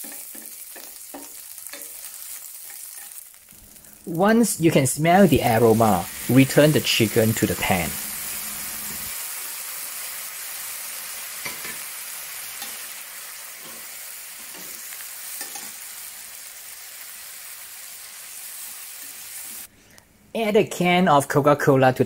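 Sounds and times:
utensils knocking and scraping pan: 0.0 - 2.0
chicken sizzling in hot oil: 0.0 - 19.7.

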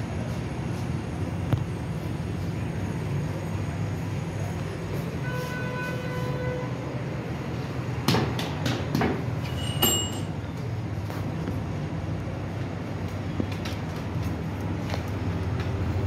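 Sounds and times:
low mechanical rumble: 0.0 - 8.1.

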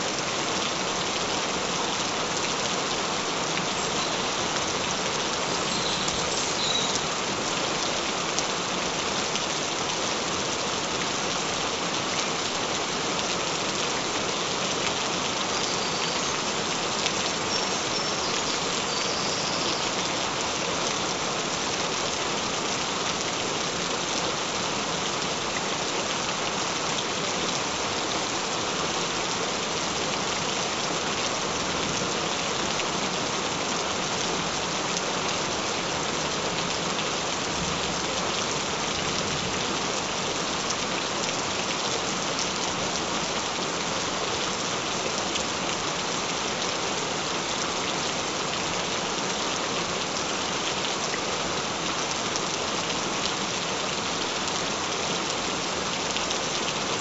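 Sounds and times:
gentle rain falling: 0.0 - 57.0.

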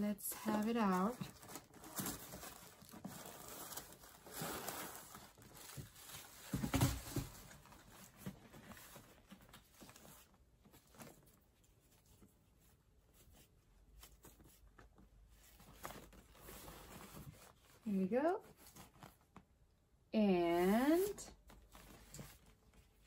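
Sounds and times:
fabric bag rustling: 0.3 - 12.0
tissue paper rustling: 0.3 - 19.4.

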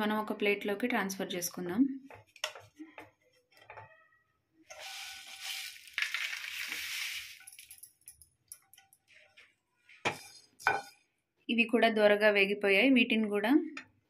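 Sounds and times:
chillies sliding out of pan: 4.7 - 7.7.

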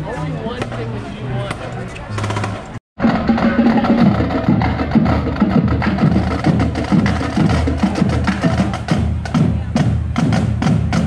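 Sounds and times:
bass drum beats: 2.2 - 11.0
snare and tenor drums: 2.2 - 11.0.

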